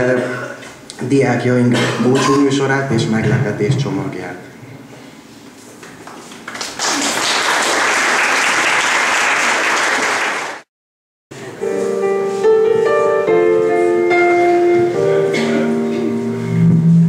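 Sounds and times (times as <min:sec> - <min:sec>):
audience applauding: 0:06.1 - 0:10.7
instrumental music with held chords: 0:11.4 - 0:17.0.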